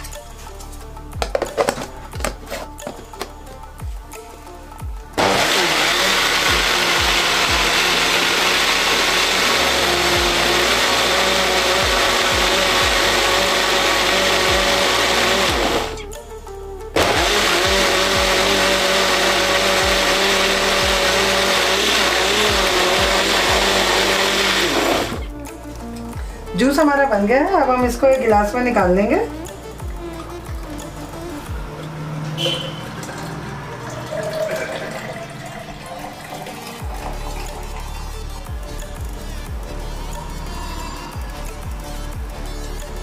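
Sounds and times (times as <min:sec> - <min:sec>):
mixer grinder whining: 0:05.2 - 0:16.1, 0:17.0 - 0:25.4.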